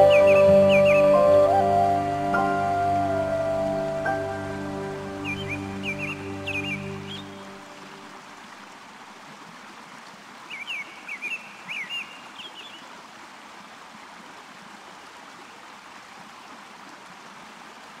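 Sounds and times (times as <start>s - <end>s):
high chirps: 0.0s - 7.4s
water rushing: 0.0s - 18.0s.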